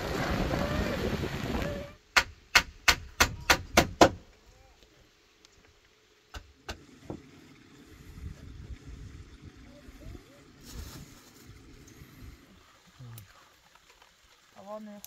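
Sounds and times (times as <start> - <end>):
wind noise: 0.0 - 2.0, 7.8 - 12.4
sharp knocks: 2.1 - 4.2.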